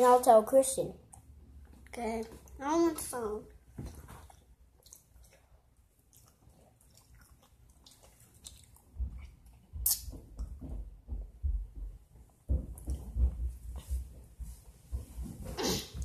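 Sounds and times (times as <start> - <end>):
faint eating noises: 0.0 - 16.0
low thumps and bumps: 10.3 - 15.5.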